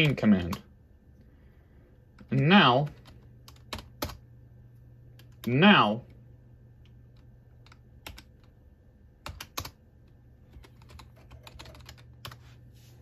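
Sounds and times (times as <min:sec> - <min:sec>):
computer keyboard typing: 0:02.1 - 0:04.2, 0:05.1 - 0:05.6, 0:06.8 - 0:08.6, 0:09.2 - 0:12.5.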